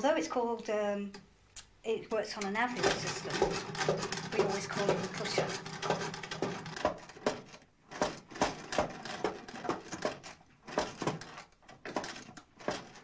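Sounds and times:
sewing machine clacking: 0:02.7 - 0:13.0.

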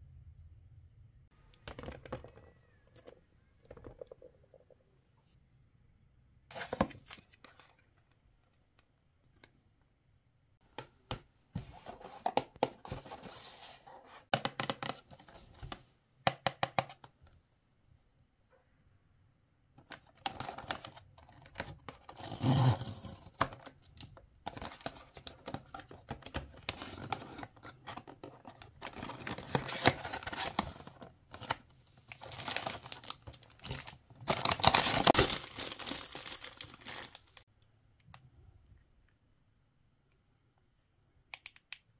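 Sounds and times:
plastic wrapper crinkling: 0:32.1 - 0:37.4
cardboard box tearing: 0:34.3 - 0:37.1.

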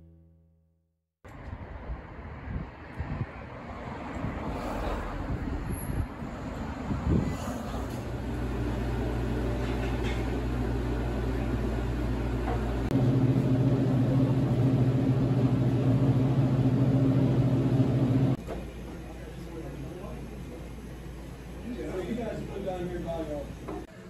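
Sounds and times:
electrical appliance hum: 0:07.1 - 0:24.0.

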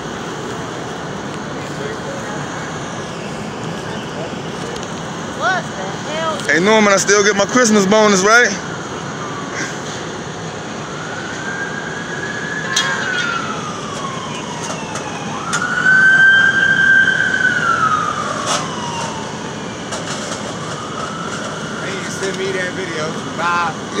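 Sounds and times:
emergency vehicle siren wailing: 0:00.0 - 0:24.0
road noise: 0:00.0 - 0:24.0.

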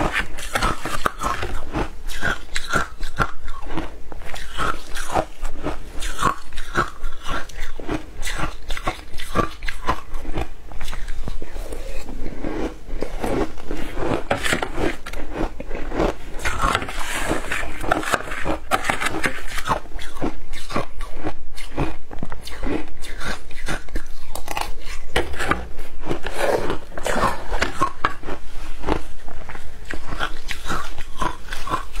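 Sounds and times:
crunching shaved ice: 0:00.0 - 0:21.1, 0:30.1 - 0:32.0.

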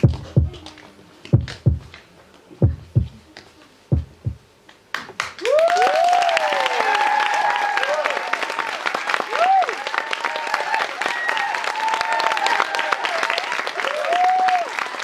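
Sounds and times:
heartbeat double thumps: 0:00.0 - 0:00.7, 0:01.3 - 0:02.0, 0:02.6 - 0:03.3, 0:03.9 - 0:04.5
audience applause and cheers: 0:05.0 - 0:15.0.

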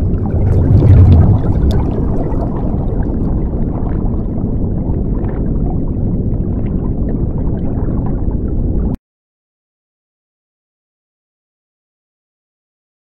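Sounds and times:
bubble pops: 0:00.0 - 0:02.4
muffled underwater rumble: 0:00.0 - 0:09.0.

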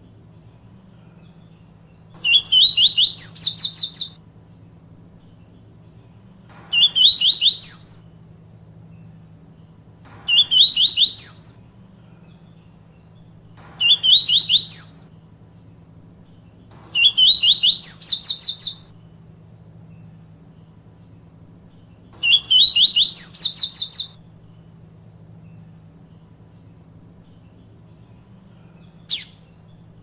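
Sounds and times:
faint low hum: 0:00.0 - 0:30.0
bird whistling song: 0:01.2 - 0:04.2, 0:06.6 - 0:09.0, 0:10.1 - 0:11.6, 0:12.3 - 0:15.1, 0:16.2 - 0:19.7, 0:21.8 - 0:25.6, 0:28.8 - 0:29.7.

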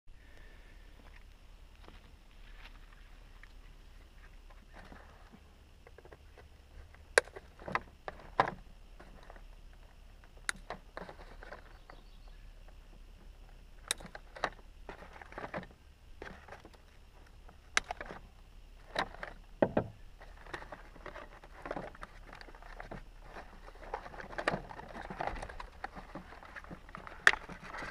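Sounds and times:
cardboard and plastic packaging rustling: 0:04.2 - 0:19.4, 0:20.2 - 0:27.9.

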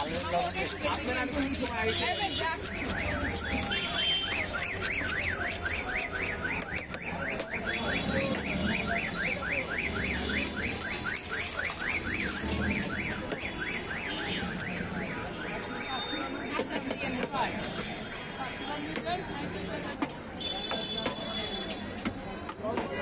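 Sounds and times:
electronic alarm siren warbling: 0:04.5 - 0:15.6.

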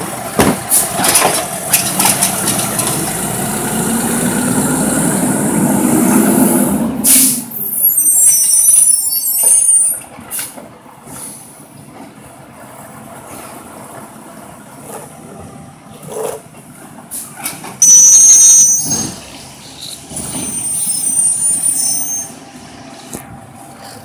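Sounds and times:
truck engine running: 0:00.0 - 0:07.0
air brakes hissing: 0:06.1 - 0:11.7, 0:17.1 - 0:22.4.

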